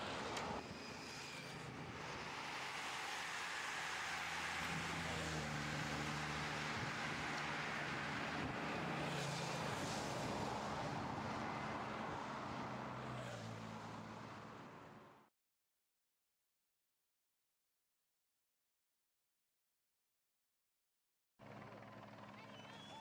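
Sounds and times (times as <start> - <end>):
motorcycle and car engines passing: 0.0 - 15.2
wind and road noise: 0.0 - 15.3.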